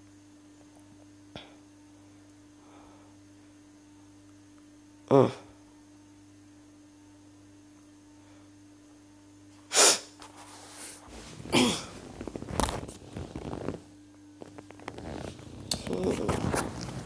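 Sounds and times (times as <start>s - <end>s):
steady low hum: 0.0s - 17.0s
person sneezing: 9.6s - 10.2s, 11.2s - 12.1s.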